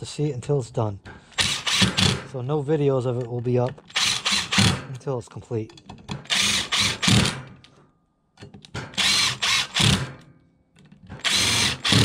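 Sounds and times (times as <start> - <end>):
impact driver bursts: 1.3 - 2.3, 3.9 - 4.9, 6.2 - 7.6, 8.7 - 10.3, 11.1 - 12.0.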